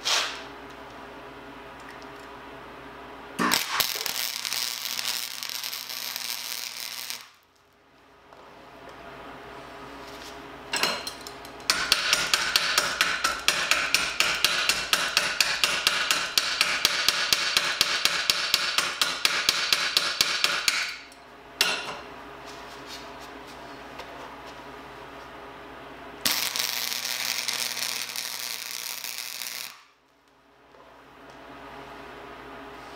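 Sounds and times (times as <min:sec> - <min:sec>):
hammer striking steel: 0:11.7 - 0:22.0.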